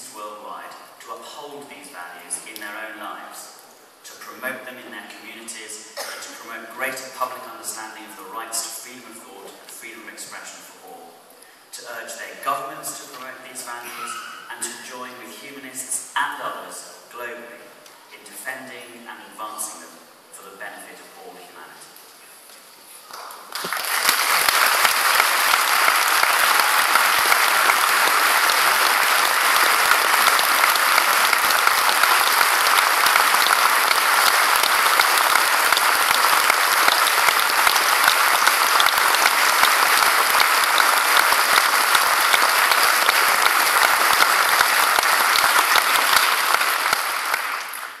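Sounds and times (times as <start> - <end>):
audience applauding: 23.1 - 48.0.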